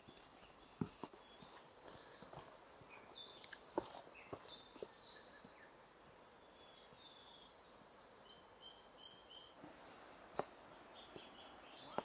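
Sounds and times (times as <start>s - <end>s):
footstep on steps: 0.0s - 4.9s
birds chirping: 0.0s - 12.0s.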